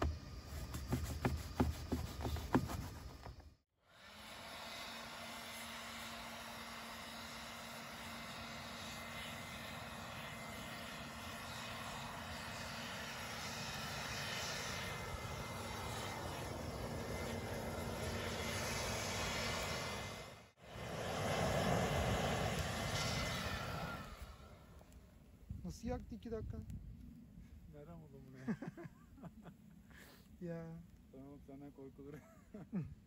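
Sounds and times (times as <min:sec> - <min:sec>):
leaf blower whining: 0:00.0 - 0:25.0.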